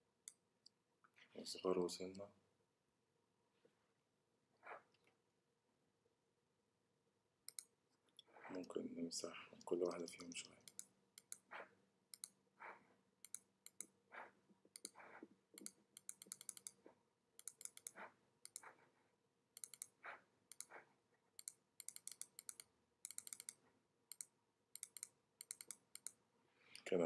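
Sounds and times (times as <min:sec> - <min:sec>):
computer keys clicking: 0:07.5 - 0:07.7, 0:09.6 - 0:12.4, 0:13.2 - 0:14.0, 0:14.7 - 0:15.0, 0:15.6 - 0:16.8, 0:17.4 - 0:18.8, 0:19.6 - 0:20.8, 0:21.4 - 0:26.2.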